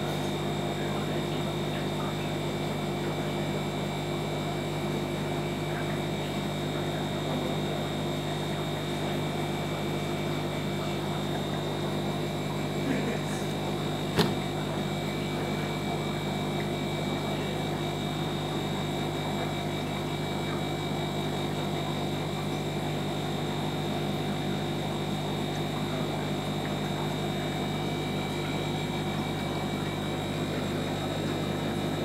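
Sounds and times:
aquarium equipment hum: 0.0 - 32.0.

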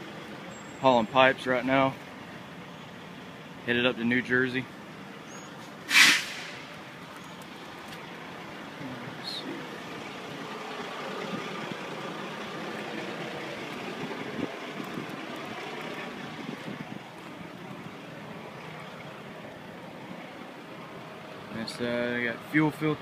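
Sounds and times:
truck engines rumbling: 0.0 - 23.0
compressed air hiss: 5.9 - 6.7.

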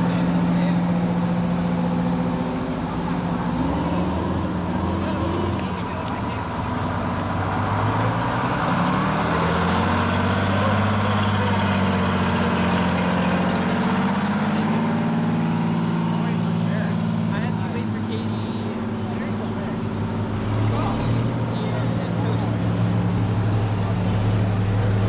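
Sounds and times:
fire engines driving past: 0.0 - 25.0.

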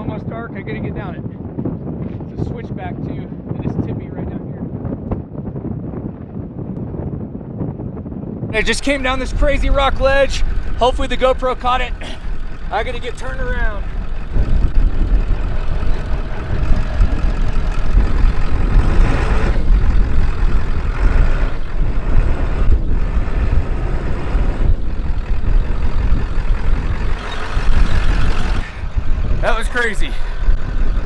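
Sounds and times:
wind on microphone: 0.0 - 31.0
diesel engine running: 8.6 - 31.0.

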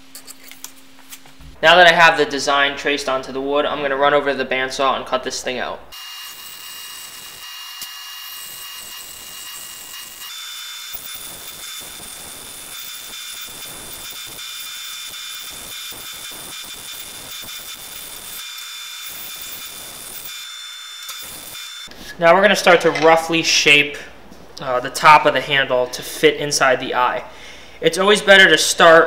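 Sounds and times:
bandsaw cutting wood: 5.9 - 21.9.

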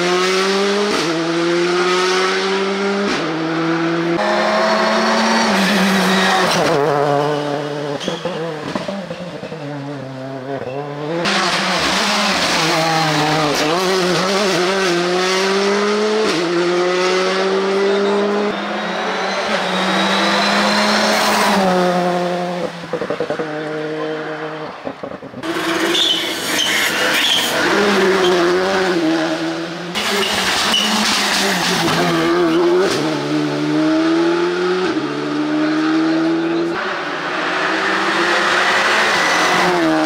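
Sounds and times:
rally car engines revving hard: 0.0 - 40.0.

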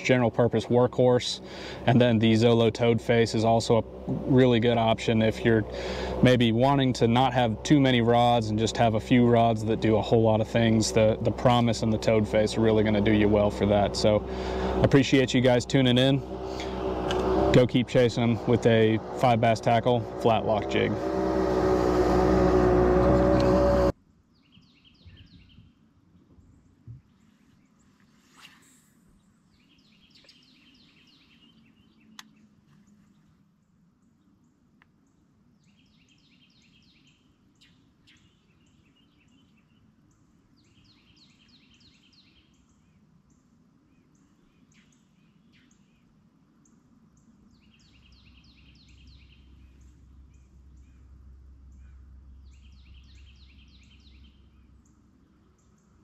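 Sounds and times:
low rumble: 1.4 - 23.9, 49.1 - 55.6
songbird trilling: 29.5 - 32.5, 40.6 - 43.0, 47.1 - 56.0.

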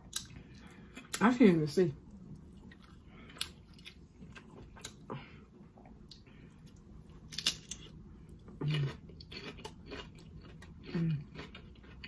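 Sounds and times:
chewing: 2.1 - 5.1, 5.8 - 12.0.

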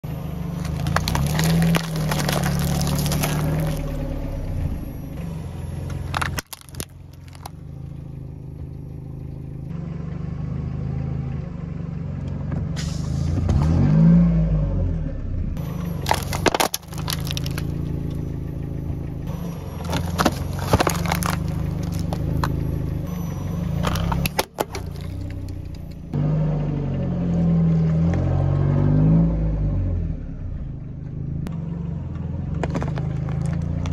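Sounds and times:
car engine running: 0.0 - 12.7, 15.0 - 28.4, 30.0 - 33.9
car tyre crushing objects: 0.3 - 4.4, 5.4 - 8.7, 15.6 - 26.2, 32.5 - 33.9
carton bursting: 0.6 - 3.8, 6.1 - 7.5, 16.0 - 17.7, 19.9 - 22.5
crunching and crackling: 0.6 - 4.0, 5.9 - 7.8, 15.6 - 18.2, 19.8 - 22.7, 23.8 - 26.0.

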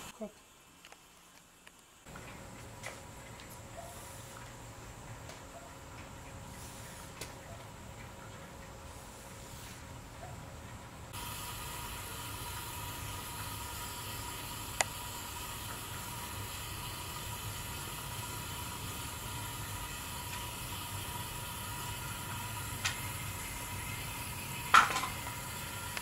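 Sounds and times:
refrigerant gas hissing: 0.0 - 26.0.

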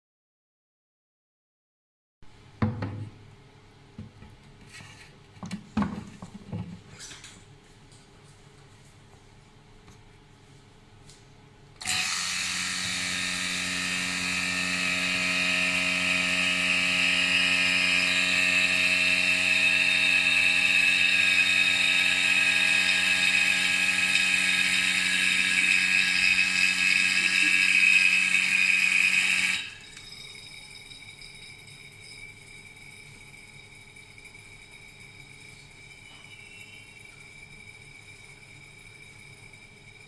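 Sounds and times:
electric vacuum pump humming: 11.8 - 40.0.

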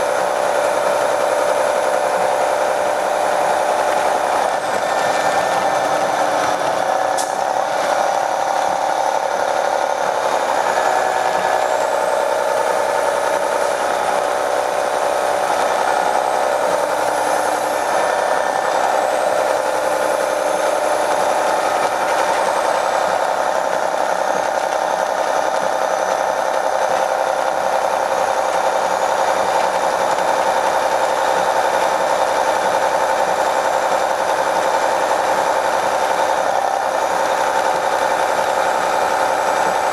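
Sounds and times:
high whine: 0.0 - 26.8
bus diesel engine running: 0.0 - 39.9
sharp click: 7.1 - 7.5.

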